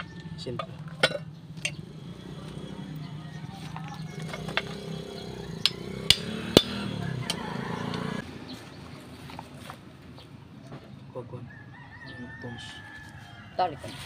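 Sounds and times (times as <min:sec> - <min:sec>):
hammer striking steel rod: 0:05.6 - 0:07.4.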